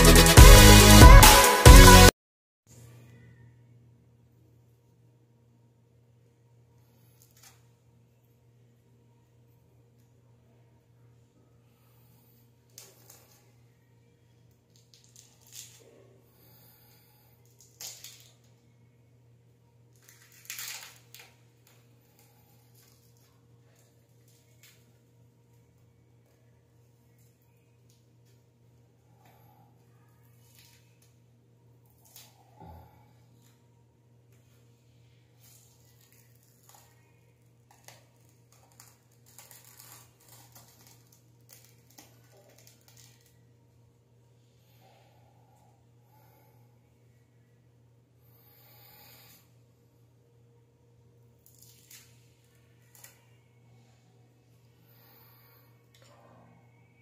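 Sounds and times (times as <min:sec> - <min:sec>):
low steady hum: 0:02.7 - 0:57.0
peel-off film rustling: 0:19.9 - 0:25.7, 0:35.4 - 0:43.5, 0:51.4 - 0:53.4.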